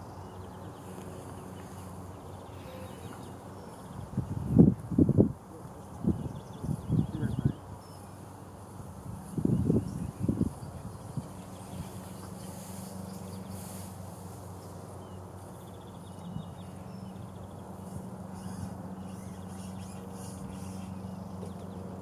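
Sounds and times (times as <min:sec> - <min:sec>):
small birds chirping: 0:00.0 - 0:22.0
steady low hum: 0:00.0 - 0:22.0.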